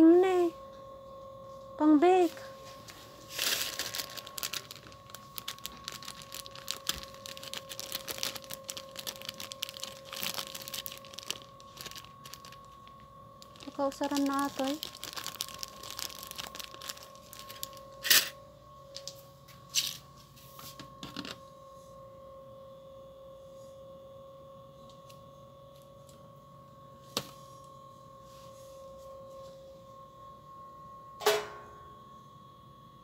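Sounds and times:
shop background hum: 0.0 - 33.0
plastic packaging rustling: 2.7 - 18.4.

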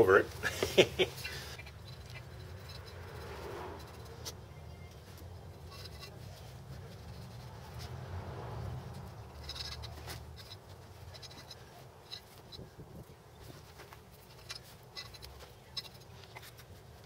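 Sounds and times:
brush scratching and tapping: 0.5 - 17.0.

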